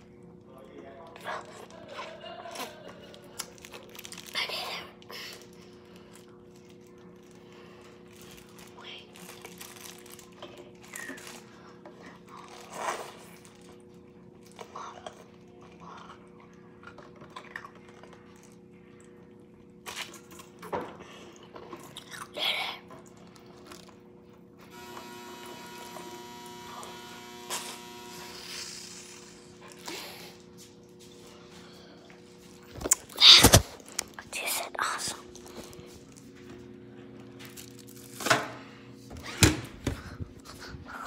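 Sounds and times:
crunching and chewing frozen jelly: 0.1s - 25.0s, 25.8s - 38.2s
plastic cup and paper crackling: 2.6s - 13.8s, 32.4s - 36.4s
steady low hum: 20.4s - 41.0s
multi-tone hum: 22.8s - 41.0s.

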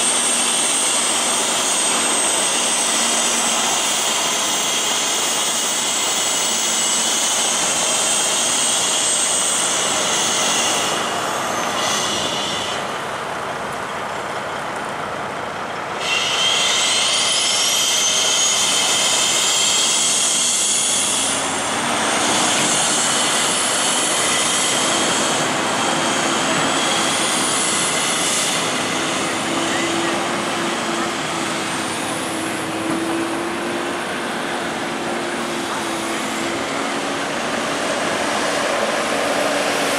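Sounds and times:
truck engine whine: 0.0s - 39.9s.

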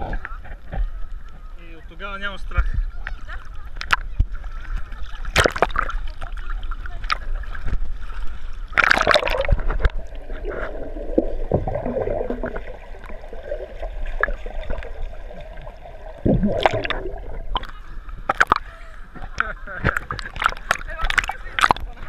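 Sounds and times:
seawater sloshing and splashing: 3.2s - 18.6s, 19.8s - 22.0s
muffled underwater gurgling: 8.7s - 22.0s.

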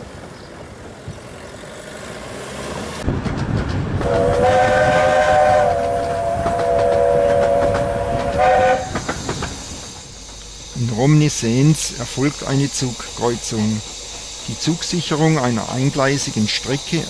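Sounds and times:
outdoor background: 0.0s - 17.0s
train wheels clicking on rails: 0.0s - 17.0s
steam whistle chord: 4.0s - 8.9s.

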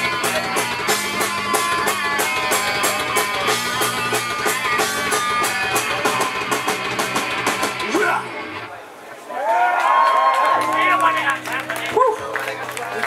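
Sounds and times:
drum kit beat: 0.0s - 8.2s
bass guitar: 0.0s - 8.7s, 10.5s - 13.0s
electric guitars: 0.0s - 8.7s, 10.4s - 13.0s.

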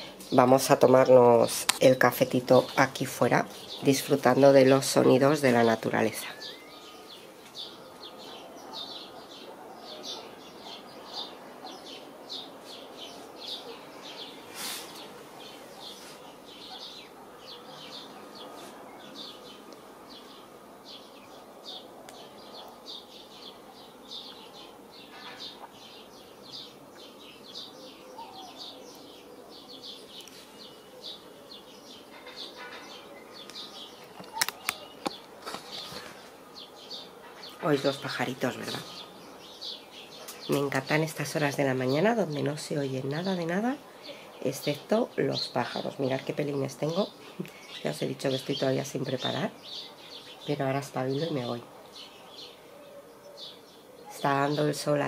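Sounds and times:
small birds chirping: 0.0s - 55.0s
sharp clicks: 33.5s - 35.4s.

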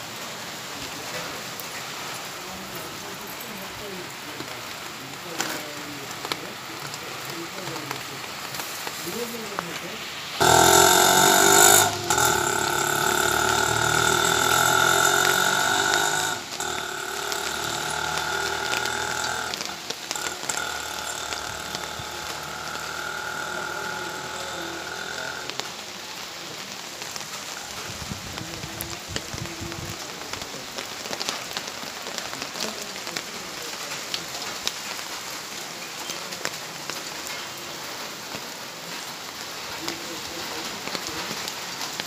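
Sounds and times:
rain falling: 0.0s - 42.0s
mechanical droning: 10.4s - 25.7s.

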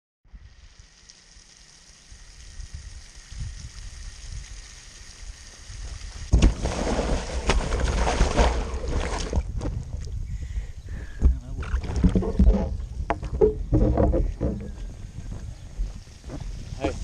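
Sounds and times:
water spraying and hissing: 0.3s - 9.4s, 15.8s - 17.0s
water splashes: 0.5s - 9.6s, 11.6s - 12.8s
wind rumble on microphone: 2.6s - 4.7s, 7.6s - 17.0s
skimboard slapping on wet plastic: 6.3s - 9.4s, 11.6s - 14.7s.

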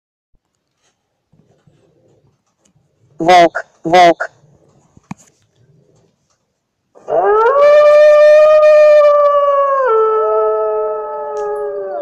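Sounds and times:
wolf howling: 7.0s - 12.0s.

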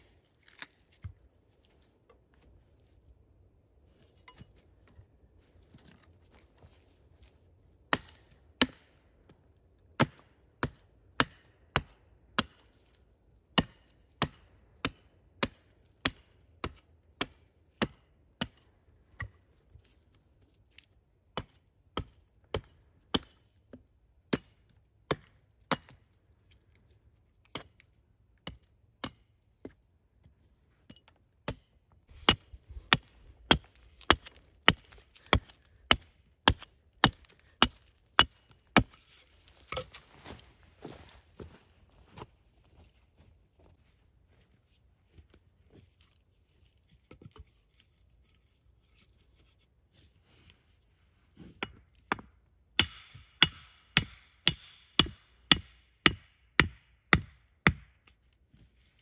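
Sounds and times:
wood chopping strikes: 7.9s - 8.9s, 21.4s - 23.4s, 31.4s - 40.4s, 51.6s - 58.0s.

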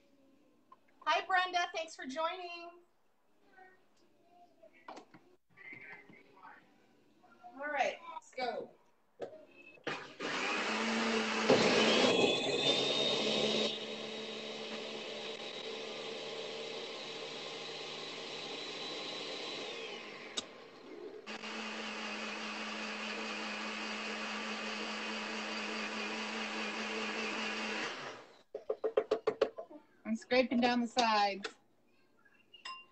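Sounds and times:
electric blender running: 9.9s - 28.4s.

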